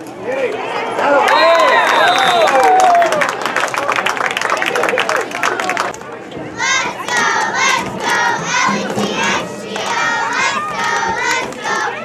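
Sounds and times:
children chanting and shouting: 0:06.4 - 0:12.0.

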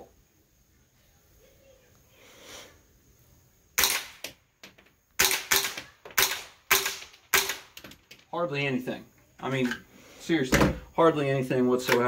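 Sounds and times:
suppressed rifle shots: 0:03.8 - 0:04.3, 0:05.2 - 0:07.8.

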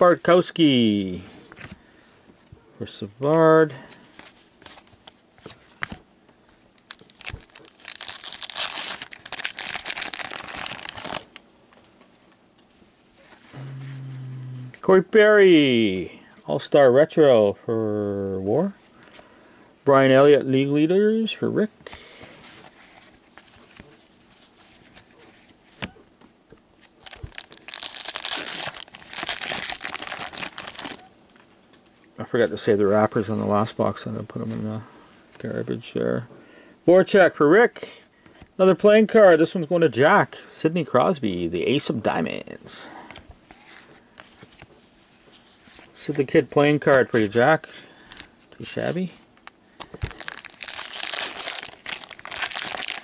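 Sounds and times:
plastic wrapper crinkling and tearing: 0:06.8 - 0:11.4, 0:26.8 - 0:31.1, 0:49.4 - 0:53.0.

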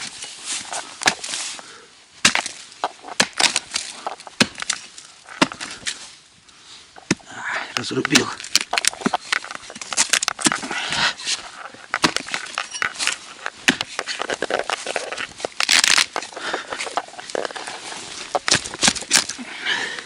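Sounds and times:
hatchet chopping rotten wood: 0:01.0 - 0:01.3, 0:02.2 - 0:06.0, 0:07.8 - 0:10.7, 0:11.9 - 0:17.7, 0:18.3 - 0:19.4.

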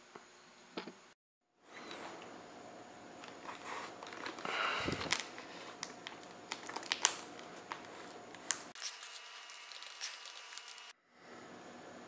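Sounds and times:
plastic film crinkling: 0:03.2 - 0:10.9.

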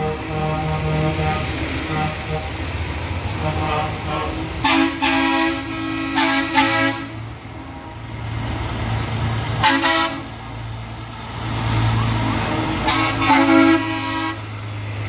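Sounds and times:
truck air horn blasts: 0:00.0 - 0:02.6, 0:03.3 - 0:07.2, 0:09.6 - 0:10.4, 0:12.2 - 0:14.6
diesel engine running: 0:00.0 - 0:15.0.

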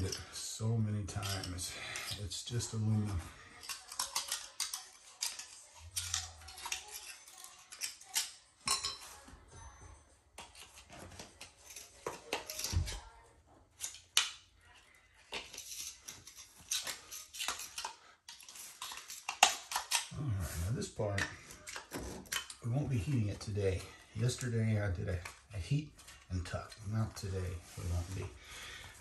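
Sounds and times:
metal strip clinking and scraping: 0:01.0 - 0:09.0, 0:10.4 - 0:12.9, 0:15.3 - 0:20.1.

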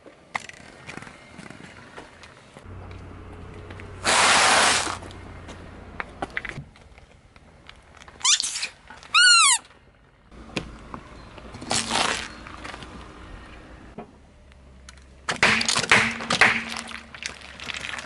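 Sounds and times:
squeaky rubber toy squealing: 0:08.2 - 0:09.7
tyre crunching something small: 0:11.6 - 0:12.9
plastic cups cracking and squelching: 0:15.5 - 0:18.0.

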